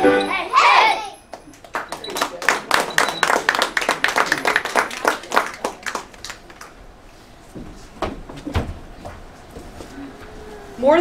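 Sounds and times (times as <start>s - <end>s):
audience clapping: 1.3s - 6.8s.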